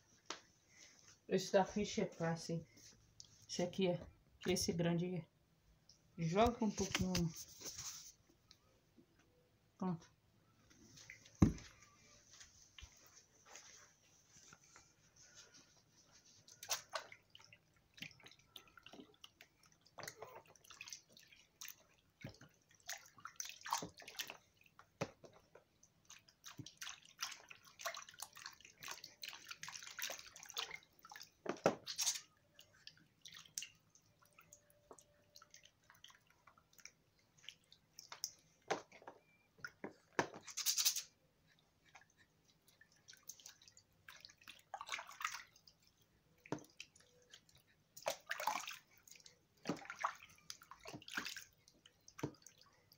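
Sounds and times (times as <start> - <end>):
water splashing in bathtub: 10.7 - 52.9
water drips: 15.3 - 40.0, 40.6 - 52.9.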